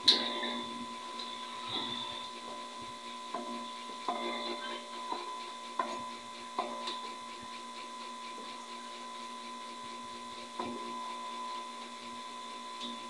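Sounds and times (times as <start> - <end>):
tesla coil buzzing: 0.0 - 7.4.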